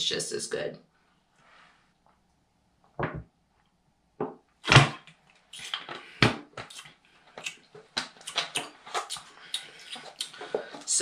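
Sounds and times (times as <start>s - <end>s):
plastic bottle knocks and handling: 3.0s - 3.3s, 4.2s - 5.1s
gulping from a bottle: 8.3s - 11.0s.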